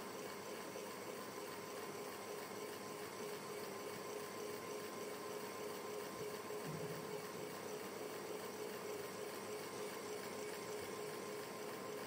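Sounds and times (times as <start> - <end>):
faint hum: 6.5 - 11.4.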